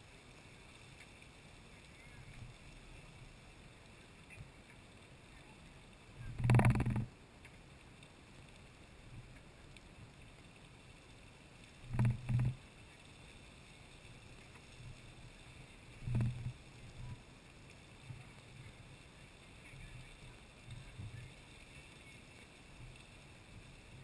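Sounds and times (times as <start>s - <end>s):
geyser water and steam rushing: 0.0s - 24.0s
short low bursts: 6.2s - 7.1s, 11.9s - 12.6s.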